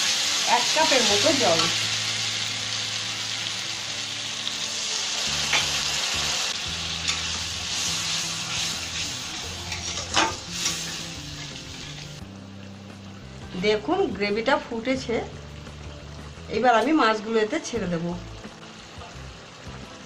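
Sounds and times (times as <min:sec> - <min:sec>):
paste sizzling in hot oil: 0:00.0 - 0:12.2.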